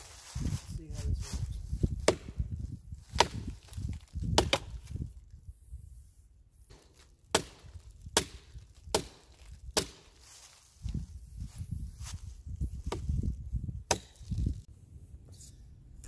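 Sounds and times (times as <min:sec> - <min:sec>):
hatchet chopping log: 0:02.0 - 0:02.5, 0:03.1 - 0:04.9, 0:06.7 - 0:10.2, 0:12.8 - 0:13.2, 0:13.9 - 0:14.5.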